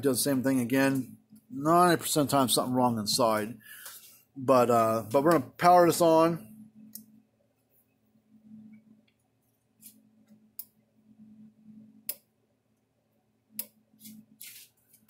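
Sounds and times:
faint low hum: 4.4s - 15.0s.

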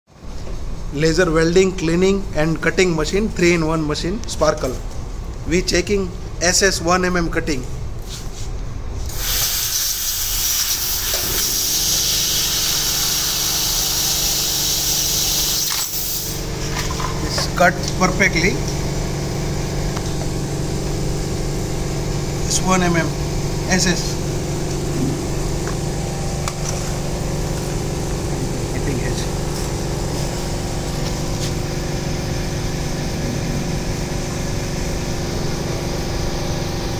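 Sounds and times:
laser cutter gas jet hissing: 9.1s - 16.6s
low hum: 16.4s - 36.5s.

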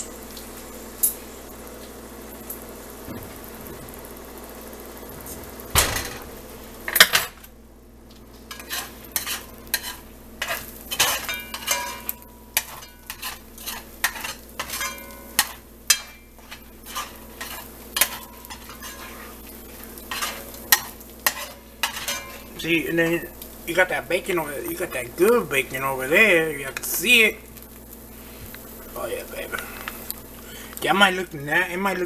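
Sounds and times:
eggs sizzling: 0.0s - 32.0s
metal utensil scraping a pot: 8.5s - 22.5s.

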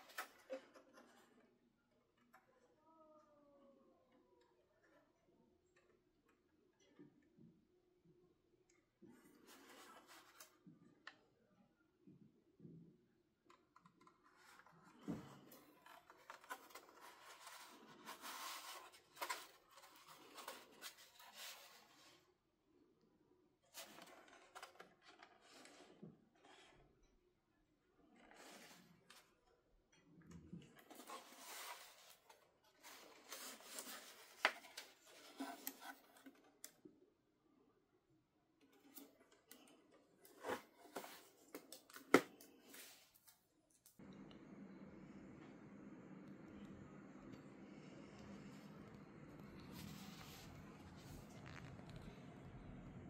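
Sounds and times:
packaging scraping and rustling: 14.2s - 22.2s, 30.8s - 36.4s, 40.3s - 43.2s.

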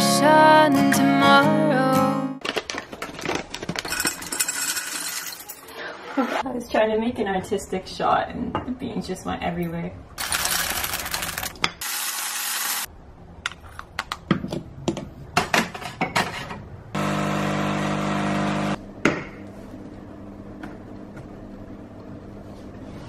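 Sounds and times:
electric coffee grinder: 10.2s - 12.9s, 17.0s - 18.8s
espresso machine pump humming: 17.0s - 18.8s.

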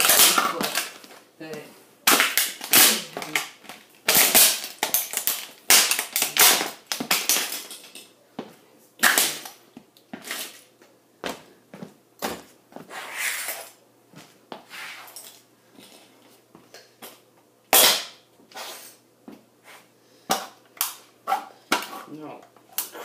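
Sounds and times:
plastic toy cracking and crunching: 0.0s - 1.1s, 2.0s - 8.0s.

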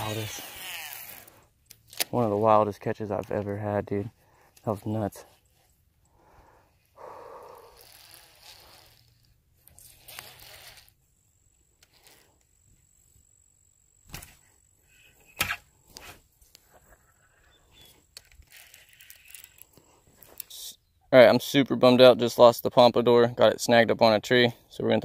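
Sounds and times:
fishing reel clicks: 11.8s - 12.3s, 18.2s - 19.7s.

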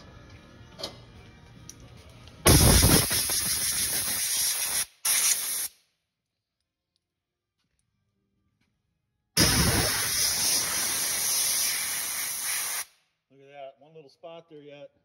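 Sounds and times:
compressed air hissing: 2.5s - 5.7s, 9.4s - 12.9s.

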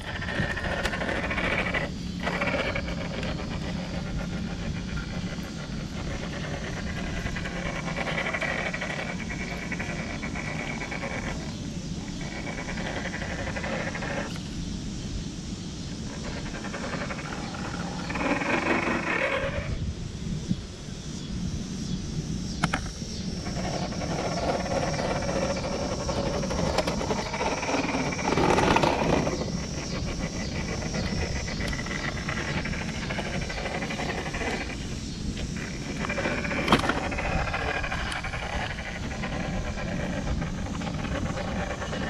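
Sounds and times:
electric motor whining: 0.0s - 14.5s, 22.6s - 42.0s
tyres scrabbling on bark: 0.0s - 14.5s, 16.0s - 19.7s, 22.6s - 42.0s.

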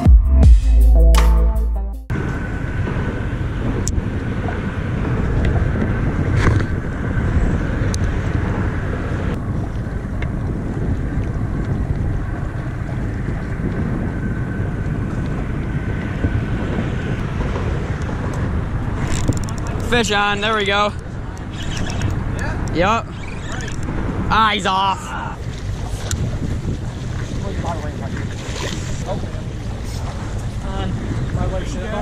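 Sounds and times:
electronic music: 0.0s - 2.1s
boat engine running: 2.1s - 32.0s
wind buffeting microphone: 2.1s - 32.0s.

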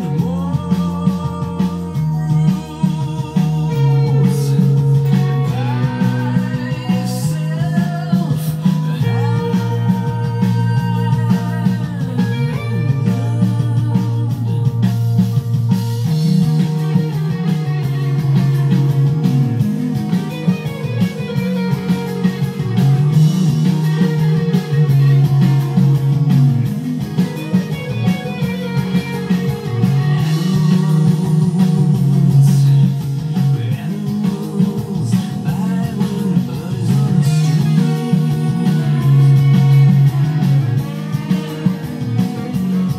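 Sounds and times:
electric guitar fast picked riff: 0.0s - 42.9s.

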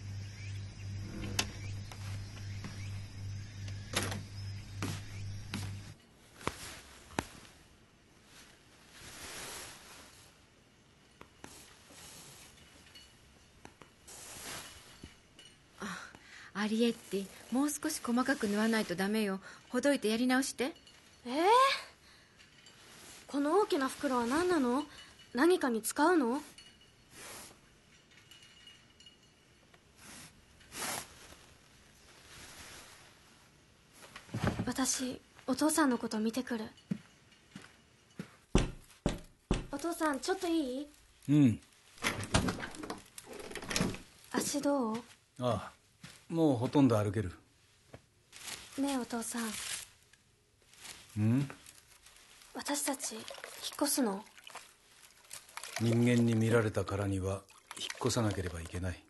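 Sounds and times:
cloth rustling: 4.8s - 15.8s, 16.6s - 25.4s, 29.9s - 35.7s, 47.5s - 56.7s
needle and thread through fabric: 16.6s - 21.7s, 47.8s - 56.7s
thread swishing through cloth: 30.0s - 33.3s.

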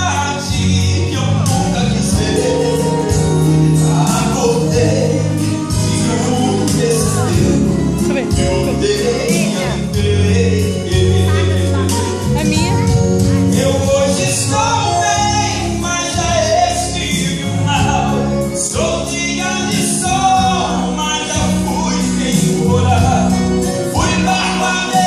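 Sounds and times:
instrumental accompaniment with bass: 0.0s - 25.0s
man singing into a microphone: 0.0s - 25.0s.

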